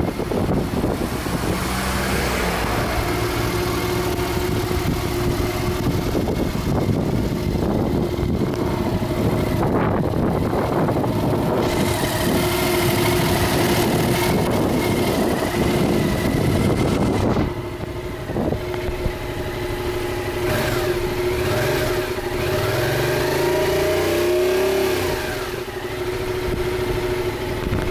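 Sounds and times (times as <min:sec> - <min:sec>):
loud rushing noise: 0:00.0 - 0:17.7
motorcycle engine idling and revving: 0:00.0 - 0:27.9.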